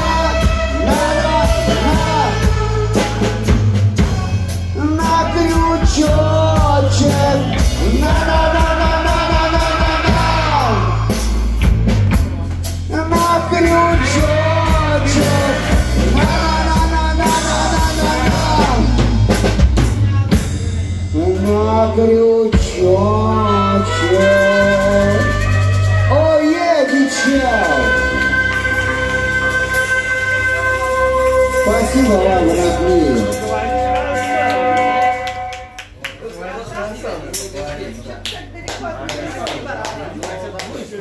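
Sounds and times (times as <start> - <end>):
person singing: 0.0 - 11.4, 12.9 - 19.4, 21.1 - 35.8
harmonica bending long notes: 0.0 - 11.7, 12.9 - 19.6, 21.1 - 35.9
drum kit: 0.0 - 36.0
electric guitars: 0.0 - 36.0
bass: 0.0 - 41.0.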